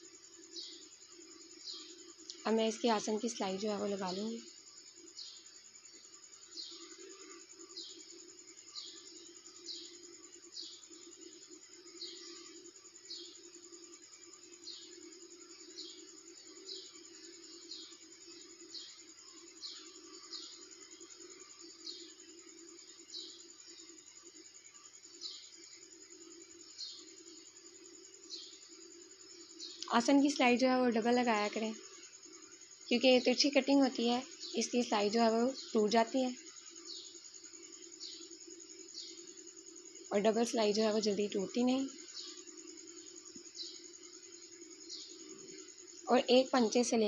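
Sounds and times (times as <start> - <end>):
small bird chirping: 1.5 - 4.5, 29.4 - 39.4, 40.1 - 47.0.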